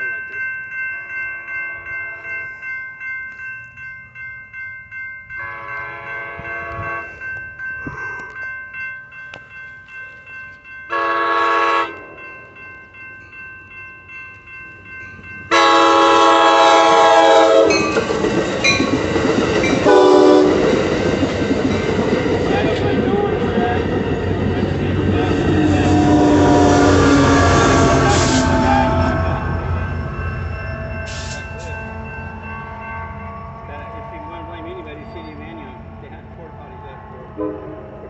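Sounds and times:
railroad crossing bells ringing: 0:00.0 - 0:38.0
train horn blasts: 0:05.4 - 0:07.1, 0:10.9 - 0:12.2, 0:15.5 - 0:17.8, 0:19.8 - 0:20.6, 0:25.4 - 0:29.9, 0:31.0 - 0:38.0.

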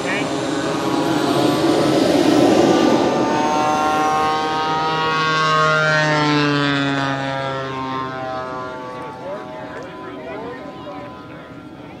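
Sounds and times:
high turbine whine: 0:00.0 - 0:12.0
jet engine exhaust rush: 0:00.0 - 0:12.0
steady low hum: 0:00.0 - 0:12.0.

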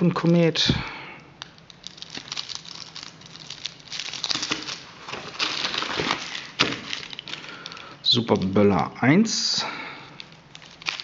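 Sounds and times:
plastic and foil packets crinkling: 0:01.4 - 0:08.9, 0:09.7 - 0:11.0.

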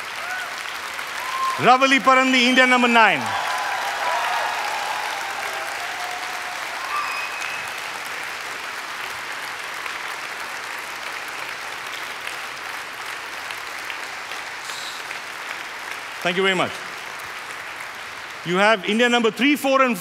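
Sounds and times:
audience cheering: 0:00.0 - 0:08.5
audience applauding: 0:00.0 - 0:20.0.

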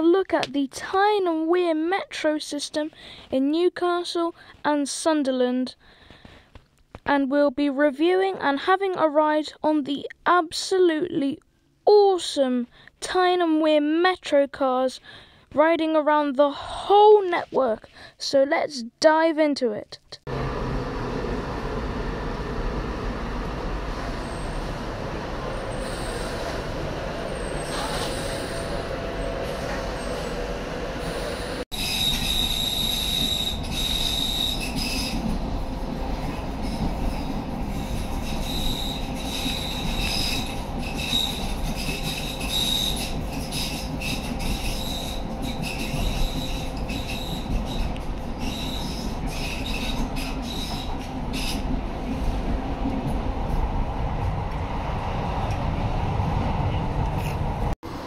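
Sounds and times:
rumble of moving train: 0:20.3 - 0:58.0
train arriving at platform: 0:20.3 - 0:58.0
wheels squealing on rails: 0:23.8 - 0:52.4.

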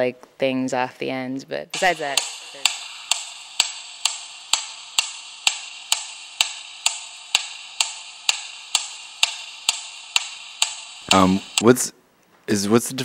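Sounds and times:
sharp ticking clicks: 0:01.7 - 0:11.6.

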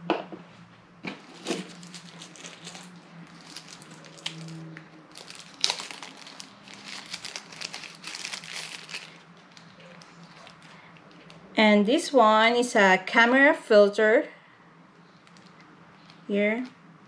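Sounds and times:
plastic bag crinkling: 0:01.3 - 0:11.4.

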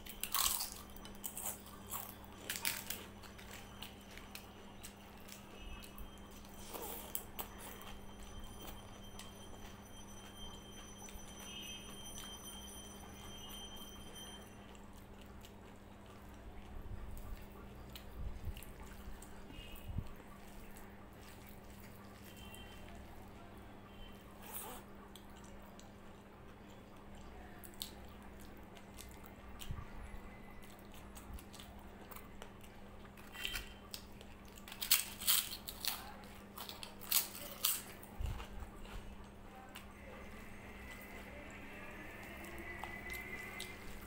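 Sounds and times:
wet chewing: 0:00.0 - 0:09.8, 0:14.7 - 0:23.3, 0:30.5 - 0:40.0
faint steady hum: 0:00.0 - 0:44.0
crunchy bites: 0:00.1 - 0:03.1.

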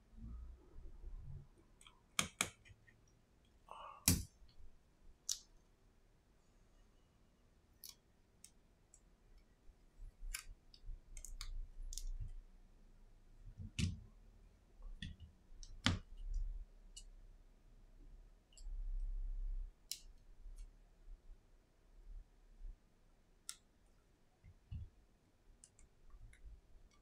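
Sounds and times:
small clicks and taps on phone: 0:01.8 - 0:03.0.

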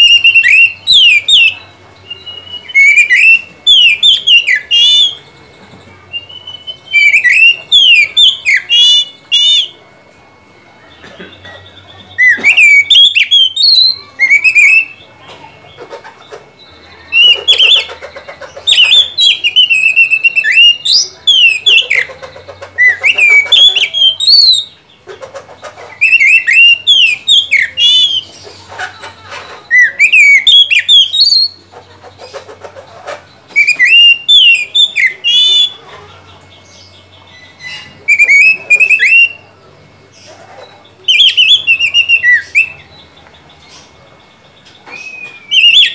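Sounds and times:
bird singing whistled phrases: 0:00.0 - 0:05.3, 0:06.1 - 0:09.8, 0:11.6 - 0:15.1, 0:18.7 - 0:22.1, 0:22.8 - 0:24.8, 0:26.0 - 0:28.3, 0:29.7 - 0:31.7, 0:33.5 - 0:35.8, 0:36.9 - 0:39.5, 0:41.0 - 0:43.1, 0:44.8 - 0:45.9.

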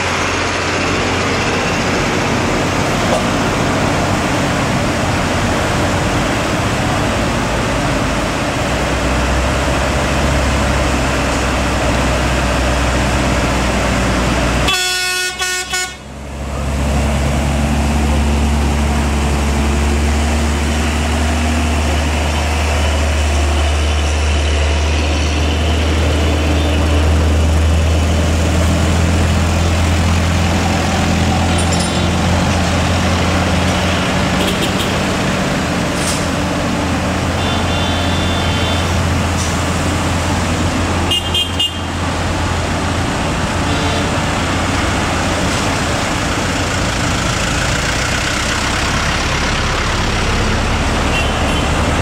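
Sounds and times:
diesel truck engines: 0:00.0 - 0:52.0
truck horn toots: 0:14.6 - 0:16.1, 0:33.9 - 0:35.0, 0:37.3 - 0:39.1, 0:41.1 - 0:42.0, 0:43.6 - 0:44.3, 0:51.0 - 0:51.9.

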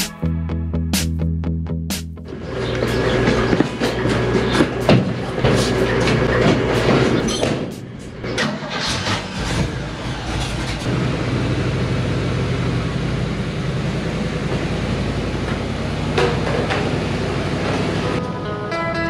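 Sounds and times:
truck engine running: 0:02.2 - 0:18.6.

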